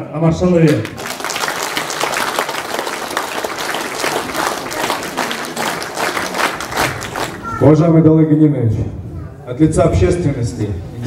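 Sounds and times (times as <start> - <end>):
audience applauding: 0.7 - 7.7.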